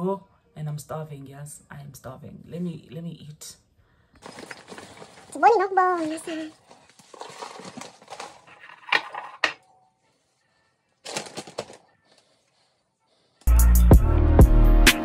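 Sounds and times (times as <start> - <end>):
plastic bag crinkling: 4.2 - 8.9, 11.0 - 12.7
muesli rattling into bowl: 4.2 - 9.3
loud music with a beat: 13.5 - 15.0.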